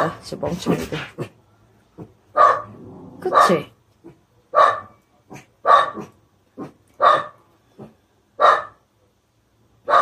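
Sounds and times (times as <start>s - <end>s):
dogs barking: 2.3s - 3.6s, 4.5s - 8.8s.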